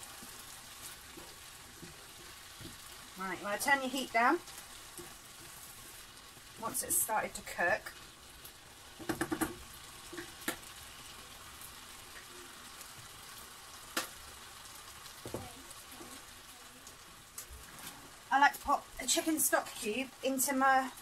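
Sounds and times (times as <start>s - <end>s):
bacon and onions sizzling in pan: 0.0s - 21.0s
wooden spoon scraping a pan: 0.1s - 6.8s.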